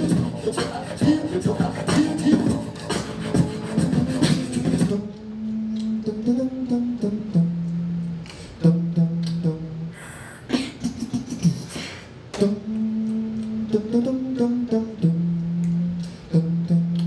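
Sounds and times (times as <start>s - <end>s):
beatboxing hummed bass notes: 0.0s - 17.0s
percussive mouth clicks: 5.7s - 6.0s, 9.1s - 9.5s, 12.3s - 13.6s, 15.3s - 17.0s.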